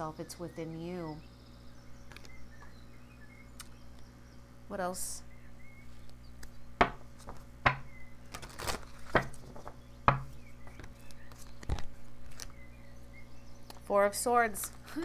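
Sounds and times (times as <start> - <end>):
cards being shuffled: 8.3 - 9.7, 10.8 - 12.6.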